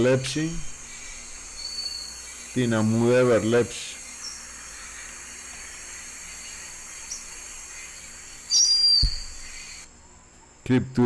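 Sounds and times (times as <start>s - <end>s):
insect hiss: 0.0s - 11.0s
loud high chirp: 0.7s - 9.9s
low thump: 9.0s - 9.3s.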